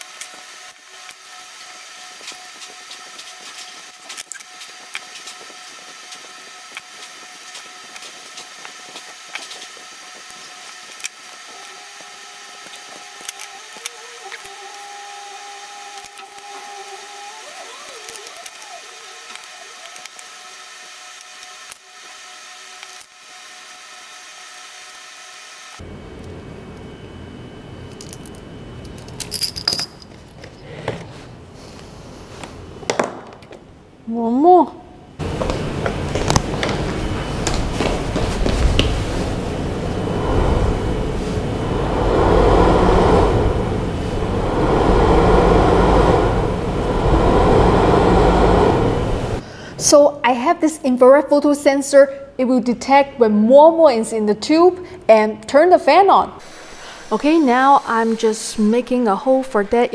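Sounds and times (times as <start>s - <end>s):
steady hum with held tones: 25.7s - 59.9s
metallic jingling and clinks: 29.0s - 30.5s.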